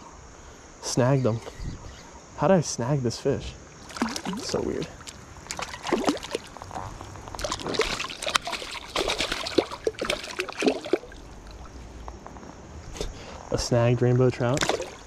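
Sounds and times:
fish splashing in water: 3.8s - 11.8s, 14.6s - 15.0s.

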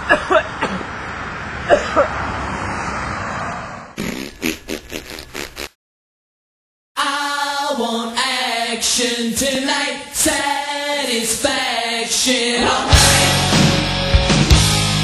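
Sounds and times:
voices singing in harmony: 7.0s - 14.1s
loud heavy rock music: 12.6s - 15.0s.

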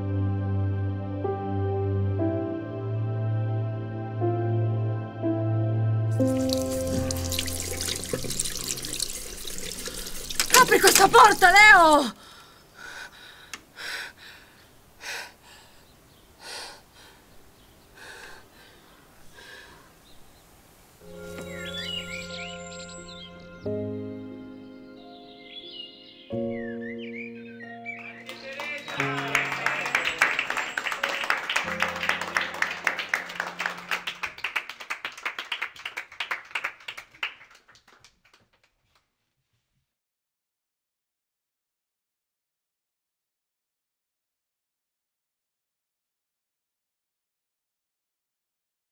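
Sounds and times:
people clapping: 6.2s - 8.5s, 10.3s - 12.1s, 28.2s - 39.0s
woman gasping breaths: 12.2s - 17.4s, 18.0s - 20.0s.

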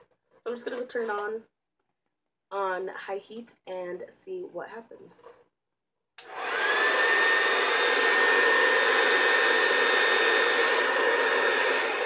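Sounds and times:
hair dryer blowing air: 6.2s - 12.0s.

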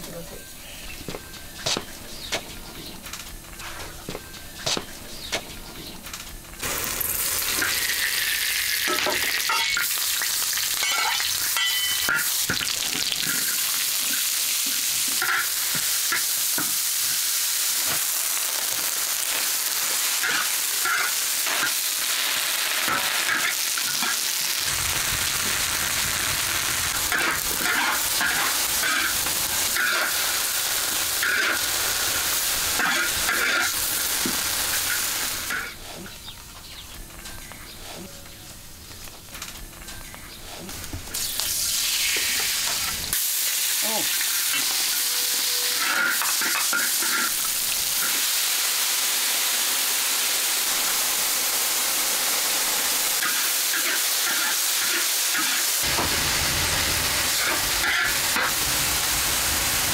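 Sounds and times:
greens sizzling in a wok: 6.6s - 35.7s, 41.1s - 59.9s.

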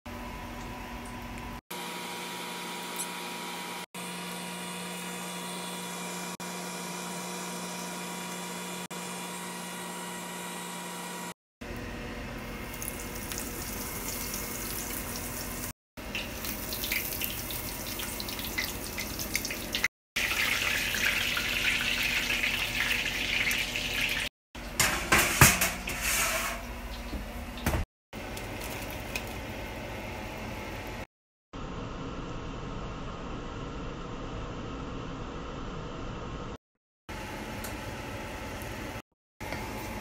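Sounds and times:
chicken sizzling in hot oil: 12.5s - 24.3s.

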